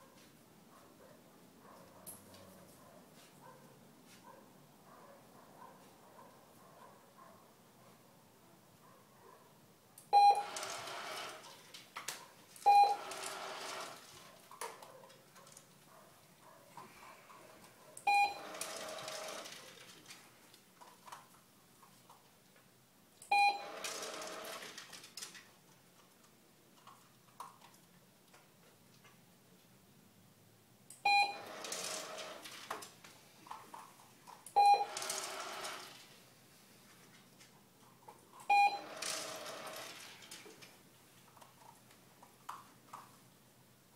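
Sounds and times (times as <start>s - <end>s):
treat dispenser beeping: 10.2s - 11.4s, 12.6s - 14.1s, 18.1s - 19.6s, 23.3s - 24.6s, 31.0s - 32.5s, 34.5s - 36.0s, 38.5s - 40.1s
food rattling in dispenser: 10.4s - 11.6s, 13.0s - 14.3s, 18.4s - 20.2s, 23.6s - 25.4s, 31.4s - 33.0s, 34.8s - 36.1s, 38.8s - 40.7s.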